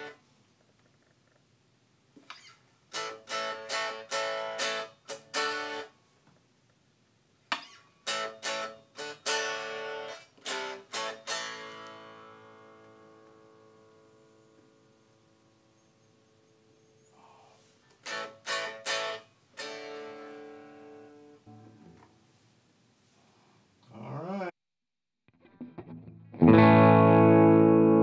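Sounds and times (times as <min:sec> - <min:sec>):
electric guitar chords strummed: 0:02.9 - 0:05.9, 0:08.1 - 0:14.3, 0:18.0 - 0:22.0, 0:25.4 - 0:28.0.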